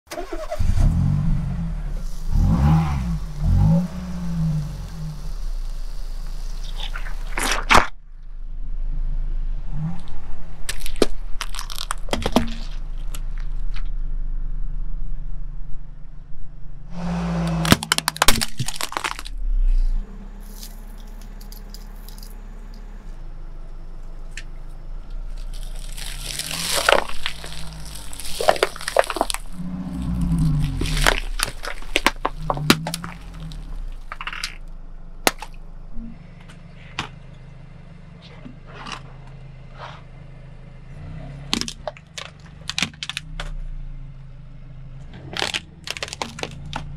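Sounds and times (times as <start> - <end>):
car tyre crushing things: 0.1 - 8.2, 9.7 - 14.2, 16.9 - 37.4, 41.0 - 44.0, 44.8 - 46.9
low steady hum: 0.5 - 41.8
plastic cassette tapes cracking: 17.6 - 19.3, 25.3 - 34.6, 45.4 - 46.8.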